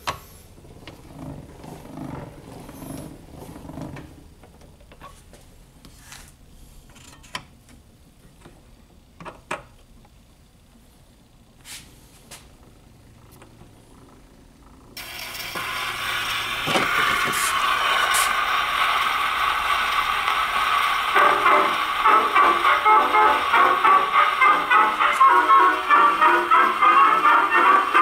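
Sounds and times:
phonograph winding gears grinding: 0:13.0 - 0:28.0.

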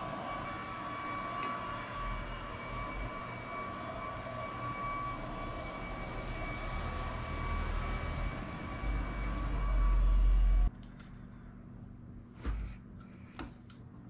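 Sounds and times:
high whistle-like tone: 0:00.0 - 0:10.7
mechanical drone: 0:00.0 - 0:10.8.

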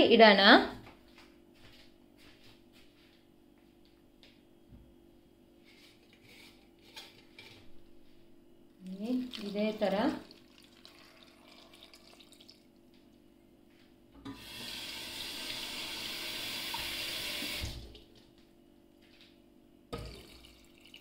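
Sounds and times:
water trickling: 0:08.8 - 0:12.8, 0:20.0 - 0:21.0.

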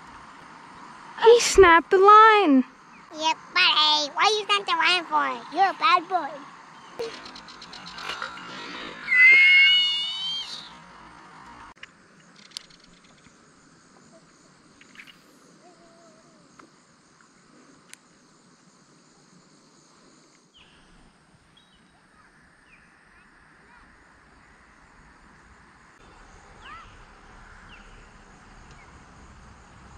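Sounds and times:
insects droning: 0:00.0 - 0:29.9
high-pitched squeal: 0:07.0 - 0:11.2.

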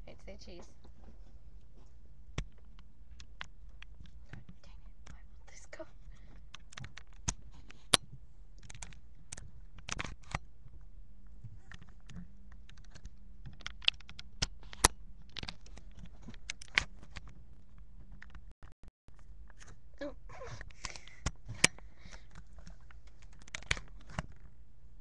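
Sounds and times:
steady low hum: 0:00.0 - 0:18.5
computer keyboard clicks: 0:12.7 - 0:15.6.

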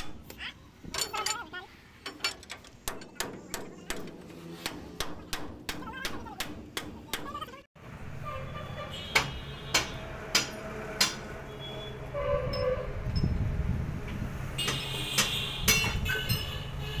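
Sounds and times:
steel bar clanking on wheel: 0:00.0 - 0:06.2.

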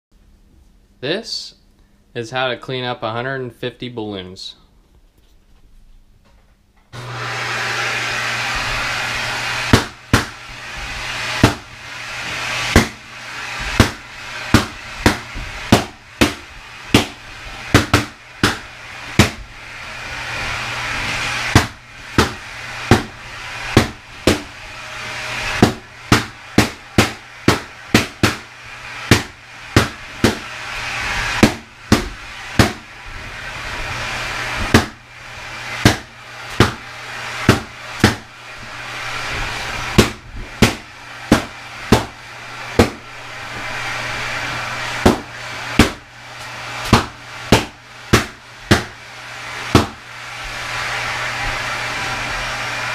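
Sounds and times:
vacuum cleaner running: 0:06.9 - 0:52.9
balloons popping: 0:09.7 - 0:11.7, 0:12.6 - 0:19.5, 0:21.4 - 0:24.5, 0:25.5 - 0:30.5, 0:31.3 - 0:32.9, 0:39.9 - 0:42.2, 0:45.0 - 0:46.0, 0:46.9 - 0:49.0, 0:49.7 - 0:50.0.

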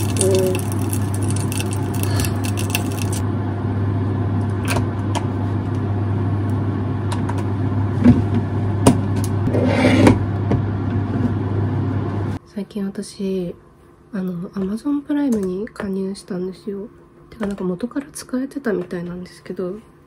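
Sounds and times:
frying pan crackling: 0:00.0 - 0:03.3
extractor fan humming: 0:00.0 - 0:12.4.

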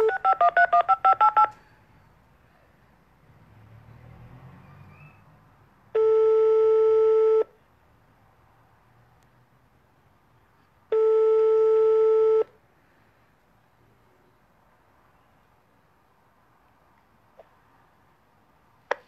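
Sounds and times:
telephone ringback tone: 0:00.0 - 0:01.6, 0:06.0 - 0:07.5, 0:10.9 - 0:12.5.

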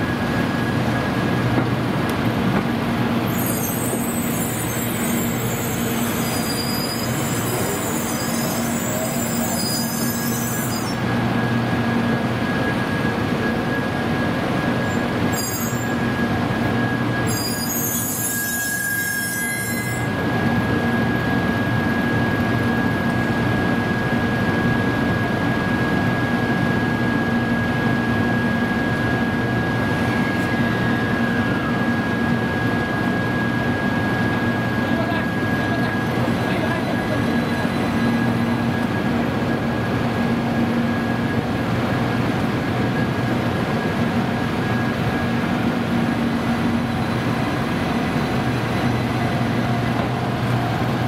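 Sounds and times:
train running rumble: 0:00.0 - 0:51.0
train wheels squealing: 0:03.2 - 0:26.3, 0:26.9 - 0:39.6
high-pitched wheel screeching: 0:03.3 - 0:11.0, 0:15.3 - 0:16.0, 0:17.3 - 0:20.2.

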